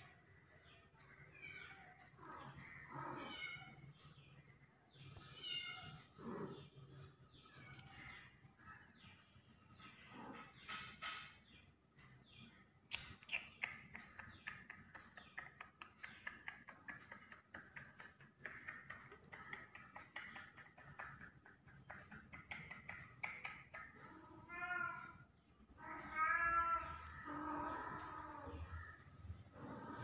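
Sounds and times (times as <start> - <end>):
cat meowing: 1.4 - 3.8, 24.1 - 28.8.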